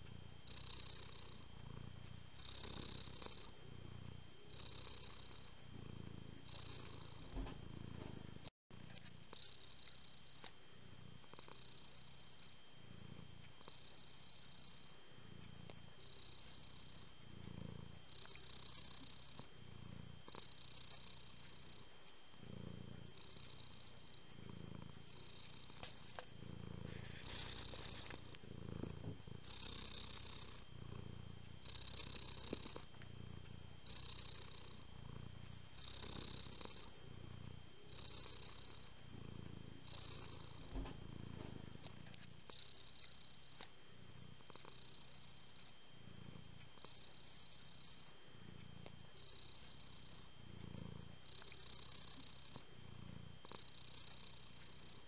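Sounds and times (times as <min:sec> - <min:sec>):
cat purring: 0:00.0 - 0:55.0.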